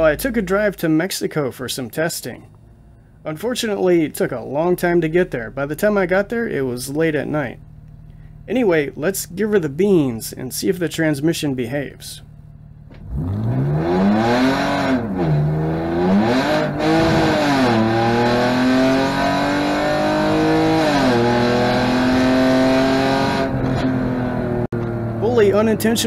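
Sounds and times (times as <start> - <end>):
car engine revving hard: 12.9 - 24.7.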